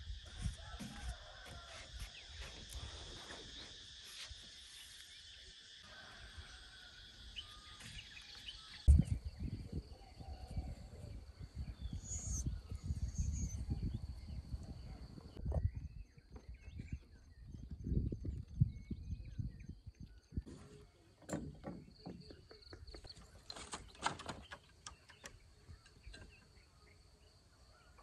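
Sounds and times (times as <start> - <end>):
forest insects droning: 0.0 - 15.4.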